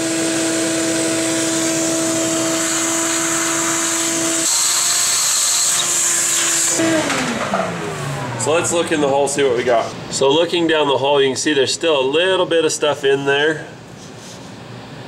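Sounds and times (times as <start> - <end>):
vacuum cleaner motor whine: 0.0 - 9.3.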